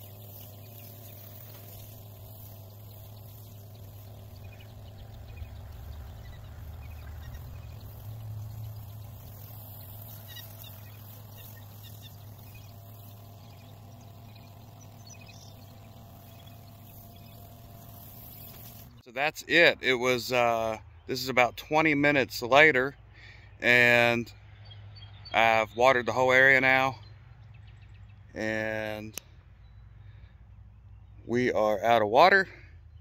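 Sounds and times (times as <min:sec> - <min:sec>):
water spraying from hose: 0:00.0 - 0:19.0
pump humming: 0:00.0 - 0:21.2.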